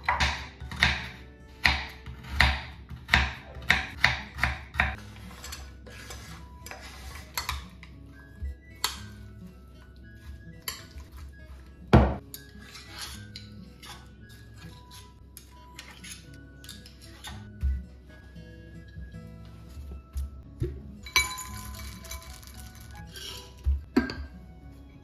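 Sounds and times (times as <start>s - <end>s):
knife chopping on cutting board: 0.0s - 5.0s
soft background music: 0.0s - 25.0s
metal spoon clinking on dishes: 21.0s - 22.4s.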